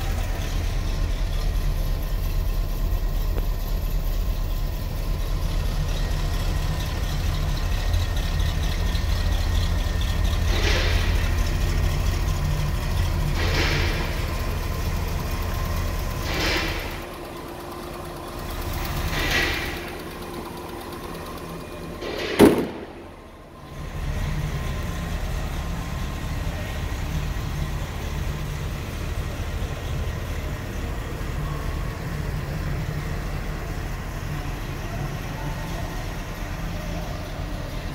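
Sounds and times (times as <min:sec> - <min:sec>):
car engine idling: 0:00.0 - 0:37.9.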